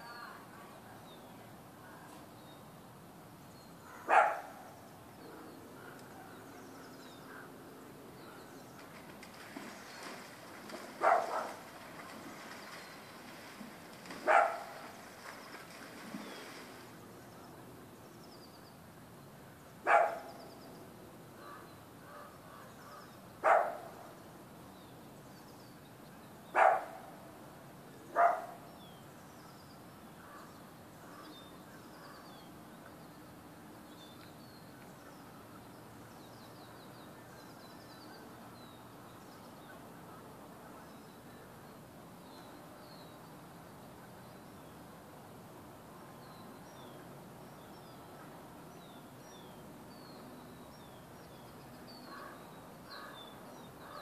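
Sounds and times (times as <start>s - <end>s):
dog barking: 3.9s - 4.6s, 11.0s - 11.6s, 14.2s - 14.7s, 19.9s - 20.3s, 23.4s - 23.8s, 26.6s - 27.0s, 28.2s - 28.6s.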